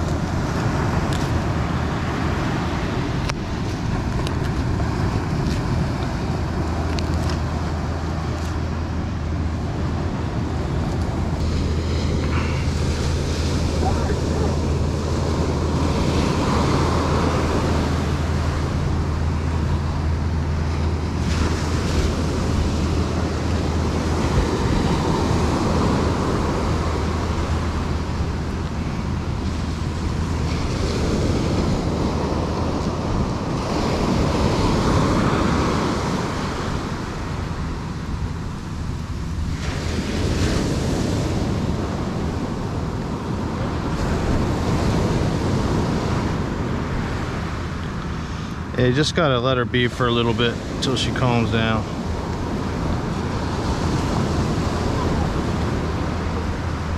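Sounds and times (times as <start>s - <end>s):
ocean surf breaking: 0.0s - 56.9s
wind rumbling on microphone: 0.0s - 56.9s.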